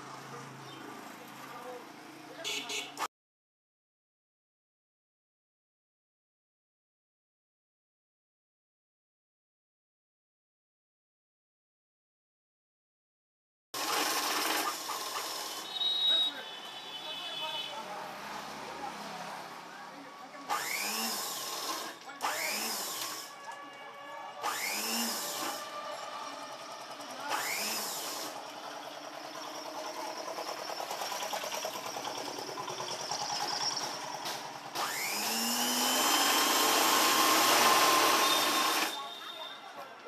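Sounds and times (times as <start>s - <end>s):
sewing machine stitching: 13.8s - 16.3s, 20.5s - 23.7s, 24.4s - 39.2s.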